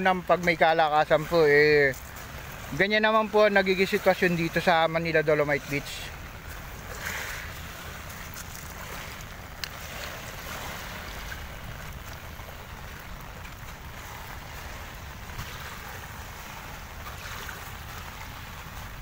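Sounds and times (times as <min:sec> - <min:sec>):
small waves lapping on beach: 0:00.0 - 0:19.0
wind rumbling on microphone: 0:06.1 - 0:19.0.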